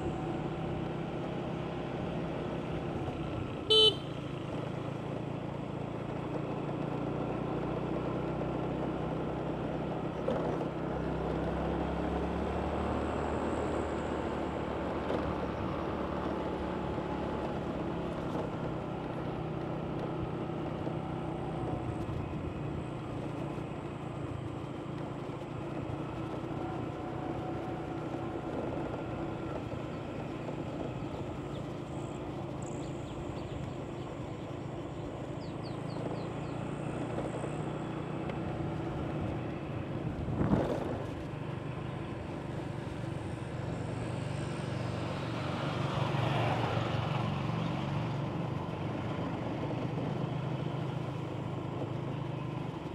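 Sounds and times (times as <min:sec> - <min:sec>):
road and wind noise: 0:00.0 - 0:52.9
motorbike engine running: 0:13.8 - 0:45.2.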